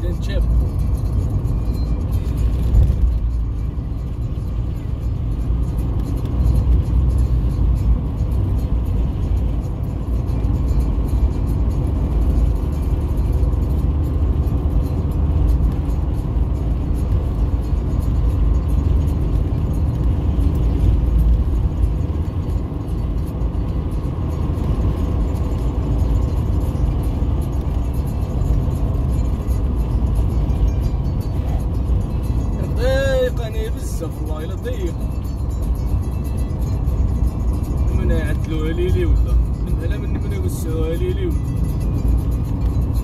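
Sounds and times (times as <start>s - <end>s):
car driving heard from inside: 0.0s - 43.0s.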